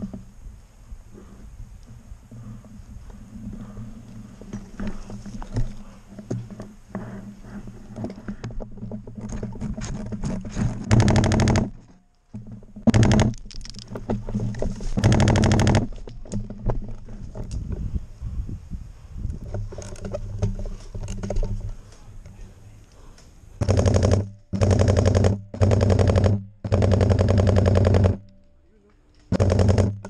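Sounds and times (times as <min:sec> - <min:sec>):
airsoft gun bursts: 0:10.8 - 0:11.8, 0:12.9 - 0:13.4, 0:15.0 - 0:15.9, 0:23.6 - 0:28.2, 0:29.3 - 0:30.0
scattered clicks: 0:12.8 - 0:16.8, 0:19.3 - 0:30.0.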